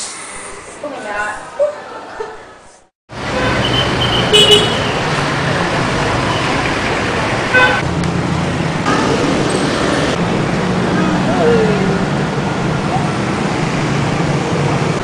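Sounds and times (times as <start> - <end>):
passing cars and motorbikes: 3.1 - 15.0
vehicle horn toot: 3.3 - 4.9, 7.5 - 7.8.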